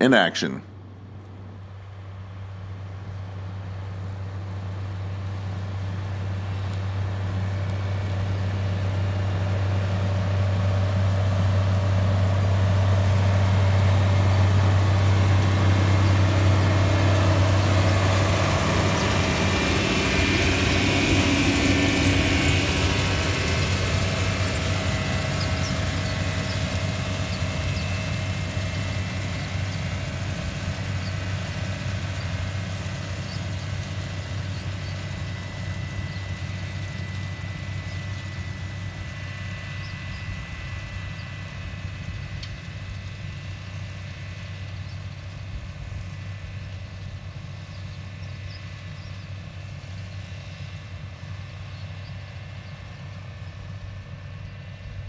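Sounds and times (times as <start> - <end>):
tractor diesel engine running: 1.7 - 55.0.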